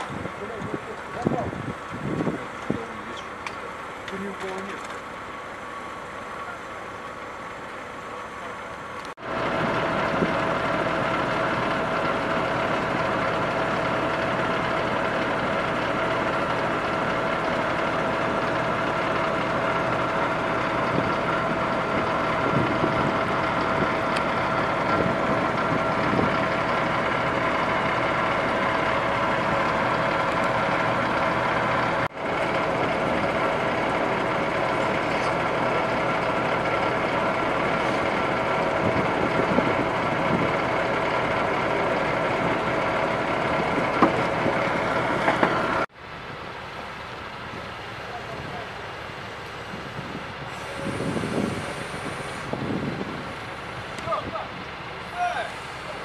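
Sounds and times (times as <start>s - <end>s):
truck engine idling: 0.0s - 56.0s.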